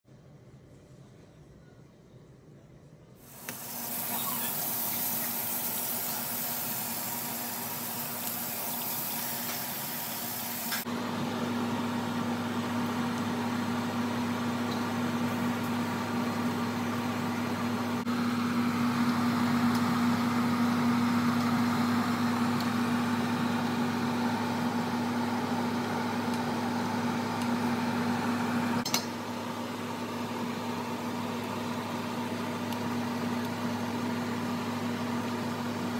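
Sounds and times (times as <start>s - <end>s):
steady hum: 0.2s - 18.7s
water boiling and bubbling: 3.2s - 17.1s.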